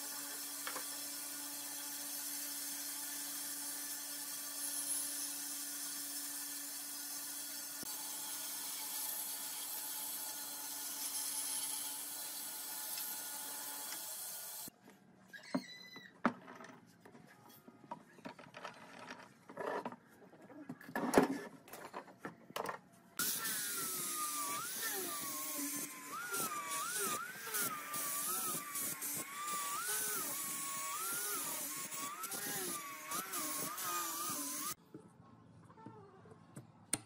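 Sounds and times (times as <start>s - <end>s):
angle grinder sanding wood: 23.2s - 34.8s
bandsaw cutting wood: 23.2s - 34.8s.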